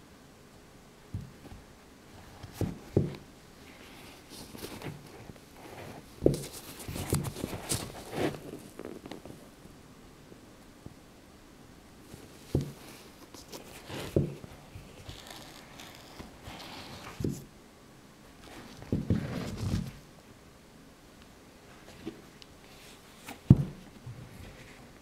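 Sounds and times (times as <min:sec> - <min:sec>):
boots knocking on tabletop: 0:01.2 - 0:01.4, 0:23.5 - 0:23.8
knit fabric rustling: 0:01.2 - 0:09.5, 0:12.1 - 0:17.5.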